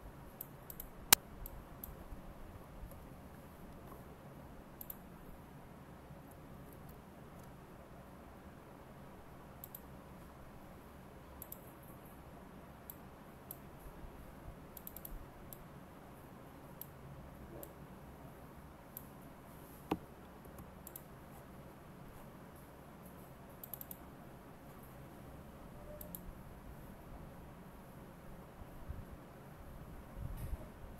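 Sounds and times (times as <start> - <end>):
faint background noise: 0.0 - 30.9
computer mouse clicking: 0.4 - 2.0, 4.8 - 5.0, 9.6 - 9.9, 11.4 - 11.7, 14.8 - 15.6, 19.9 - 21.1, 23.6 - 24.0, 26.0 - 26.3.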